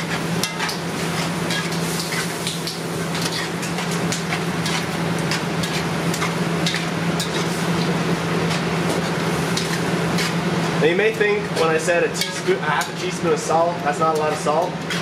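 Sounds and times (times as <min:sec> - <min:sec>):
metal tongs scraping a pot: 0:00.4 - 0:07.9, 0:08.5 - 0:10.4, 0:11.6 - 0:13.1.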